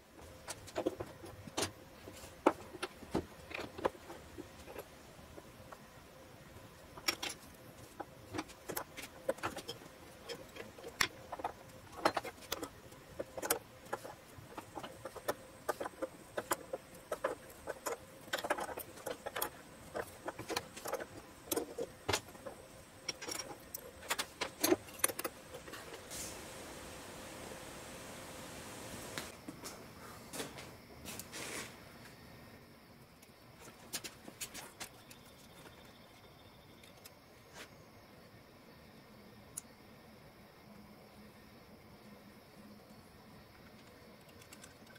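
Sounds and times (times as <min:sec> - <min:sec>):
steady hiss: 0:00.0 - 0:34.9.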